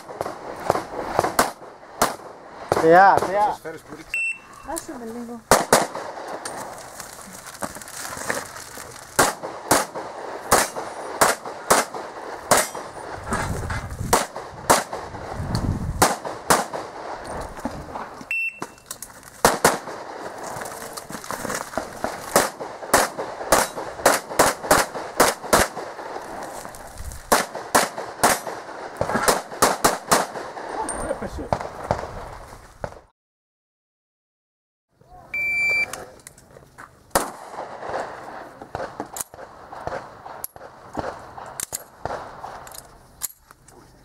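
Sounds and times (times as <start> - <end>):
rapid handgun shots: 0.0 - 3.5, 5.5 - 6.4, 9.2 - 13.0, 14.1 - 15.1, 16.0 - 17.2, 19.4 - 20.4, 22.0 - 26.2, 27.3 - 30.8
electronic shot timer beep: 4.2 - 4.5, 18.3 - 18.8, 35.4 - 35.9.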